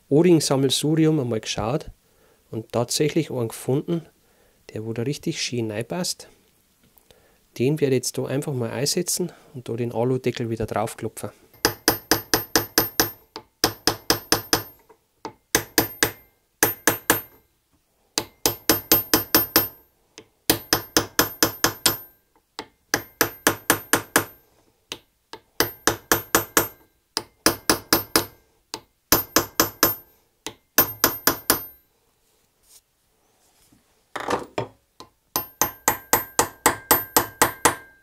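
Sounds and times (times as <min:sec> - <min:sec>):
hammer striking metal punch: 0:11.6 - 0:17.4, 0:18.2 - 0:19.8, 0:20.5 - 0:24.4, 0:25.4 - 0:31.8, 0:35.0 - 0:38.0.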